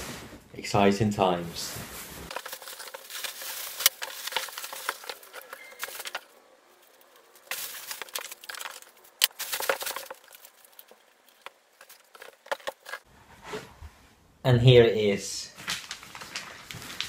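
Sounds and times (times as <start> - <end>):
cardboard rustling and scraping: 1.6 - 13.8.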